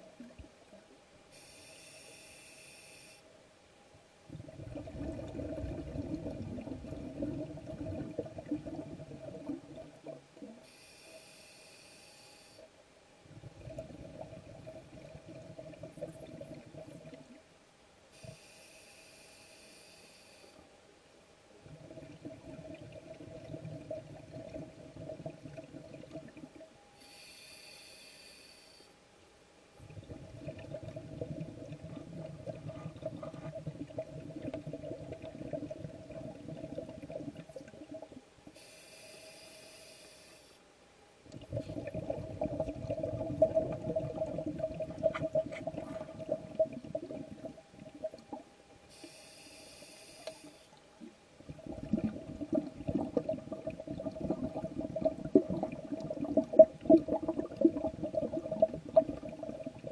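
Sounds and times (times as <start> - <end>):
regulator inhale hiss: 1.3 - 3.3, 10.6 - 12.8, 18.1 - 20.7, 27.0 - 29.0, 38.5 - 40.6, 48.9 - 50.8
exhaled bubbles underwater: 4.3 - 10.6, 13.2 - 17.4, 21.6 - 26.7, 29.8 - 38.2, 41.3 - 48.5, 50.5 - 59.9.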